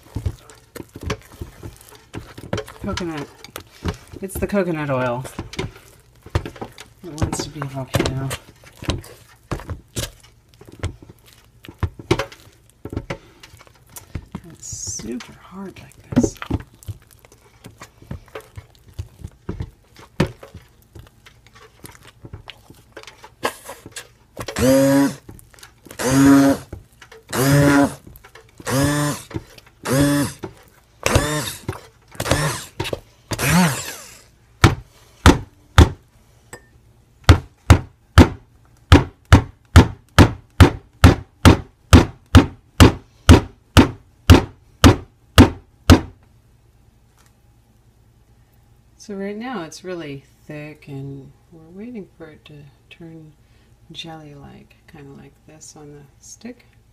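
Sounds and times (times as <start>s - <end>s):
stick blender motor pulsing: 21.6s - 25.3s, 25.9s - 26.7s, 27.3s - 34.3s.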